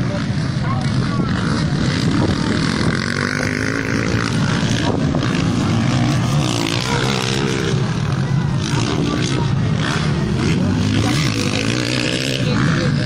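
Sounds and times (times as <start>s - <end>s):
wind buffeting microphone: 0.0s - 9.8s
dirt bike engines revving: 0.0s - 13.0s.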